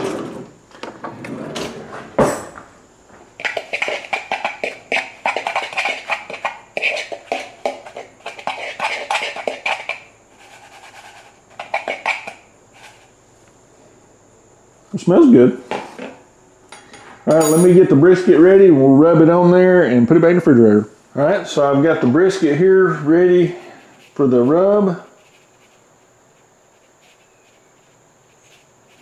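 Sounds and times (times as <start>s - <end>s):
fork scraping plastic bowl: 3.4s - 13.1s.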